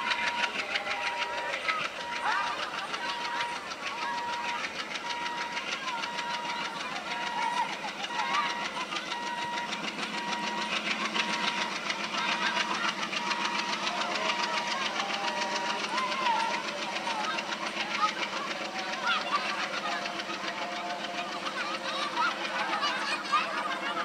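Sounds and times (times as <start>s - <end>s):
diesel locomotive engine chugging: 0.0s - 24.0s.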